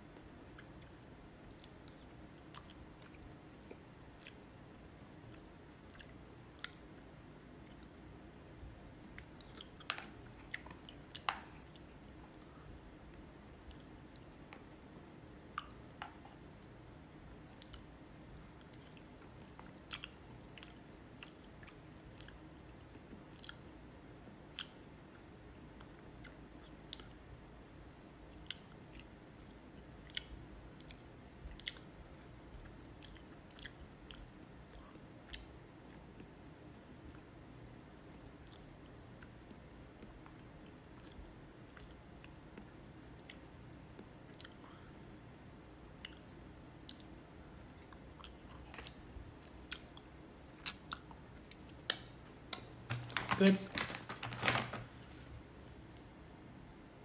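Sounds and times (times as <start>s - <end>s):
soft chewing: 0.0s - 53.9s
faint low hum: 0.0s - 57.0s.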